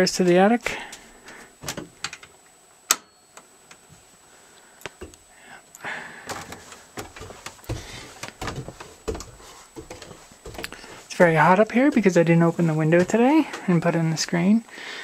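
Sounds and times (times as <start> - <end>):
knocks and rustles: 1.6 - 2.4, 6.1 - 14.0
footsteps on wooden stairs: 4.9 - 14.4.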